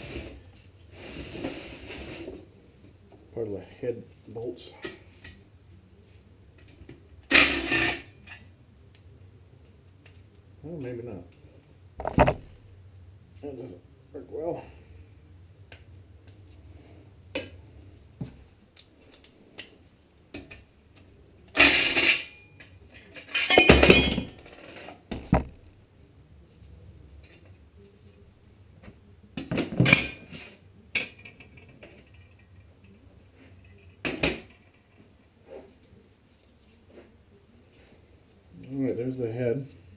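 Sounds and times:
metal engine parts clinking: 21.6 - 24.3.

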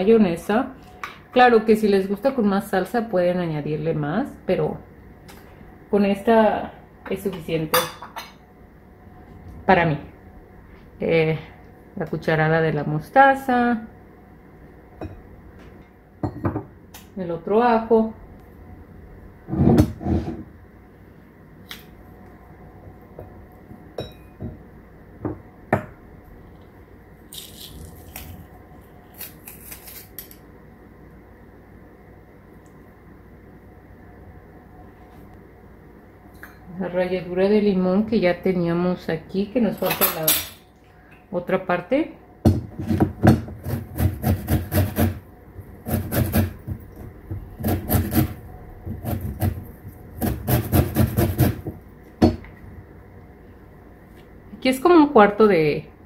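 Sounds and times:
garlic crunching in a press: 27.3 - 30.4
lemon rind scraping on grater: 43.6 - 45.2, 45.8 - 46.6, 50.2 - 51.6.

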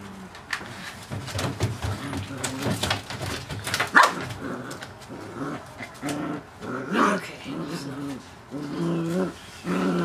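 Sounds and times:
puppies growling and whimpering: 4.2 - 10.0.

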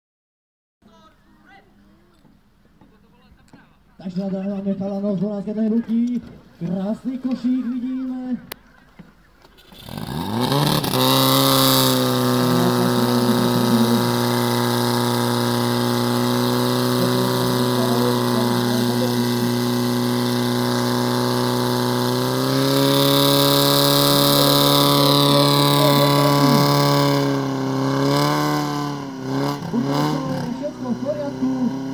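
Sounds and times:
pump engine running at high revs: 9.6 - 31.9.

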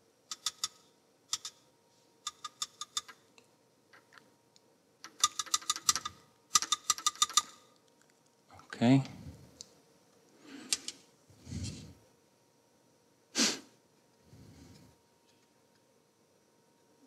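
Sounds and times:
keyboard typing: 0.3 - 1.6, 2.3 - 3.2, 5.0 - 7.6.

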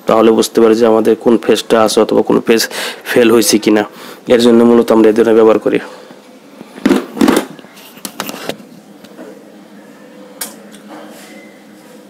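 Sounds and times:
plastic parts knocking and clattering: 6.8 - 8.3.

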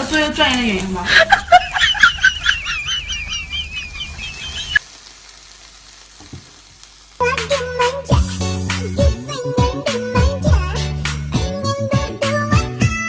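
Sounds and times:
hiss: 1.0 - 11.3
background music with steady beat: 7.4 - 13.0.

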